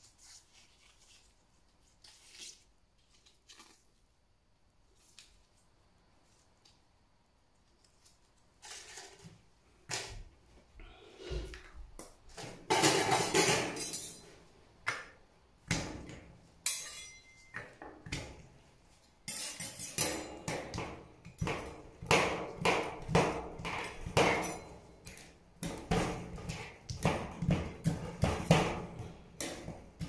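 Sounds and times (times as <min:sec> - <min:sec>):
metal spatulas chopping on steel plate: 0:15.7 - 0:18.4, 0:19.3 - 0:30.0.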